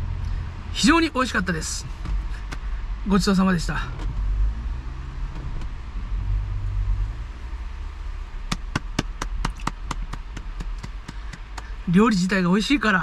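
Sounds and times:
steady low rumble: 0.0 - 13.0
man clapping hands quickly: 8.5 - 11.7.

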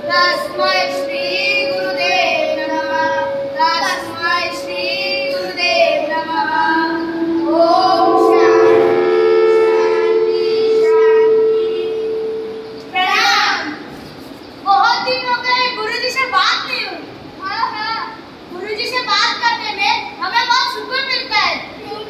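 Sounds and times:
children singing together: 0.0 - 13.9.

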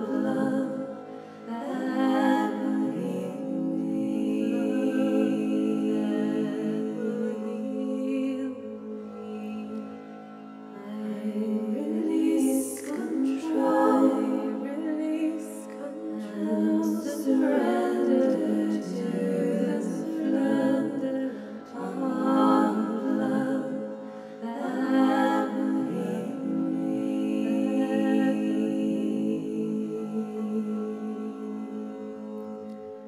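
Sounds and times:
woman singing wordless tones: 10.8 - 32.1.

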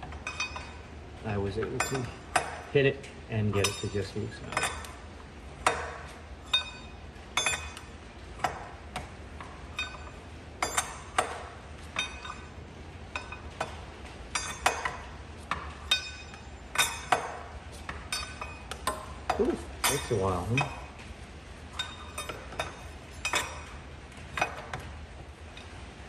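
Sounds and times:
steel tools clinking on metal: 1.6 - 2.6, 3.5 - 5.0, 6.4 - 7.8, 15.9 - 17.3, 19.8 - 20.9, 21.8 - 23.8.

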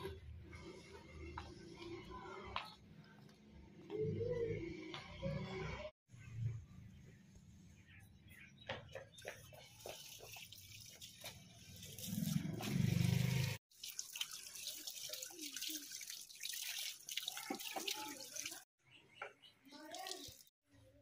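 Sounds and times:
water running from tap: 9.6 - 18.7, 19.8 - 20.5
water splashing on concrete: 9.6 - 18.7.

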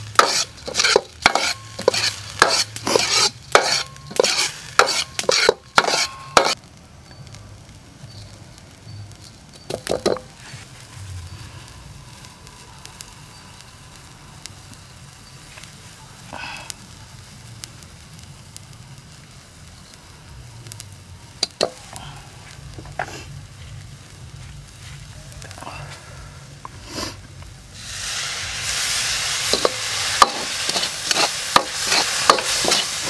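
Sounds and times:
ladle scraping rice in a wok: 0.0 - 6.6, 27.8 - 33.0
steady sizzle: 0.0 - 33.0.

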